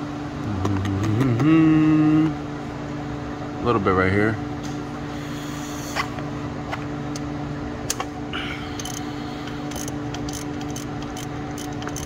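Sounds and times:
low mechanical hum: 0.0 - 12.0
socket wrench clicking: 9.7 - 12.0.

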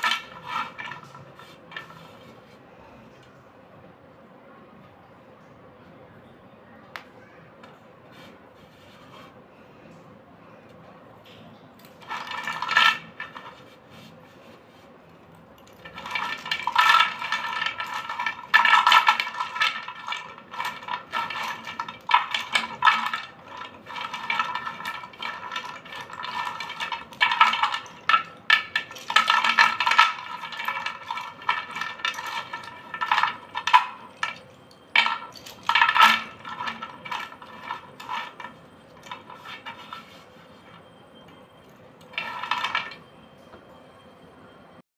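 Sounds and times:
slate pencils clattering in bowl: 0.0 - 2.3, 11.8 - 14.0, 15.6 - 40.7, 42.0 - 43.0.

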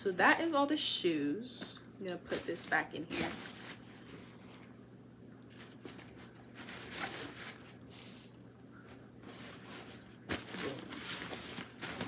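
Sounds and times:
clothing rustling: 2.2 - 4.8, 5.5 - 12.0.

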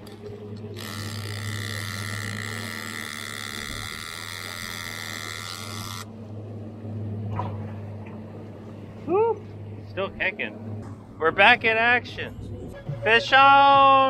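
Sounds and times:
fishing reel clicker buzzing: 0.0 - 6.1
outboard motor humming: 0.0 - 13.1.

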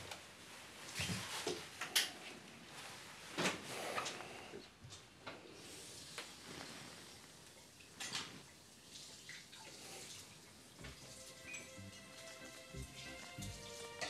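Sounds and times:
water running from a tap: 8.8 - 14.0
soft music tones: 10.8 - 14.0.

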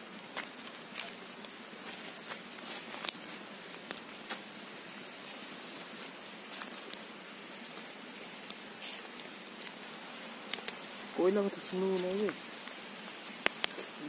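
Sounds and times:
wood fire crackling and popping: 0.0 - 14.0.

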